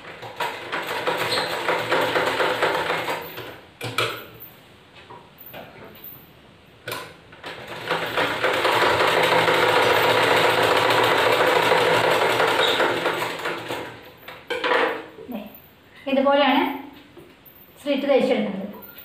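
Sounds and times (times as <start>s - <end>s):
sewing machine stitching: 0.0s - 3.6s, 7.4s - 14.0s.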